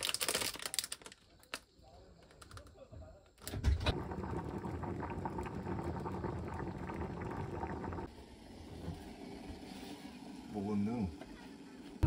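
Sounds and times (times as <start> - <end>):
soup boiling and bubbling: 3.7 - 10.5.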